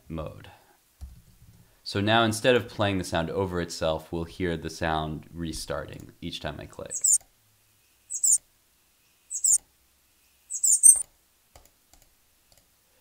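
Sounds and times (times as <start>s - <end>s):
short high bird chirps: 6.9s - 7.2s, 8.1s - 8.4s, 9.3s - 9.6s, 10.5s - 11.0s.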